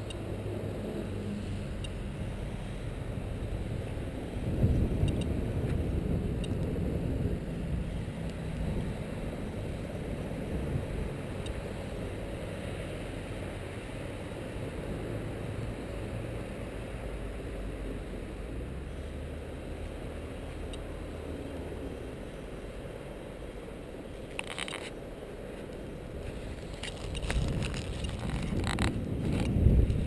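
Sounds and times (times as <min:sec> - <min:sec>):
geiger counter clicks: 0:00.0 - 0:00.2, 0:05.0 - 0:05.4, 0:06.4 - 0:06.7
low rumble of handling noise: 0:00.0 - 0:30.0.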